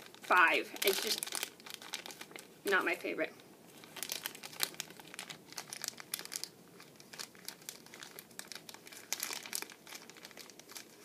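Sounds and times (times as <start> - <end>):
plastic candy bag crinkling: 0.0 - 11.0.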